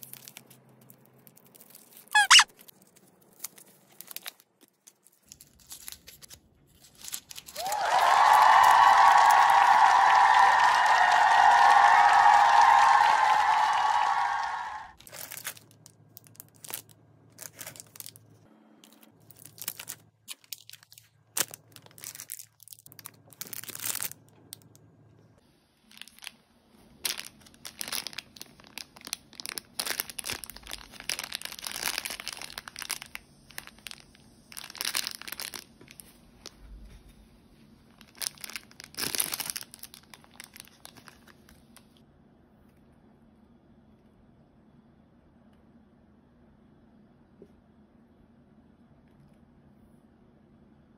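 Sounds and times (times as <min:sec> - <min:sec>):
plastic wrapper crackling and tearing: 0:00.0 - 0:07.7, 0:15.0 - 0:24.7, 0:25.8 - 0:36.6, 0:37.9 - 0:42.0
plastic snack packets rustling: 0:00.0 - 0:07.8, 0:15.0 - 0:24.7, 0:25.8 - 0:36.7, 0:37.9 - 0:42.0.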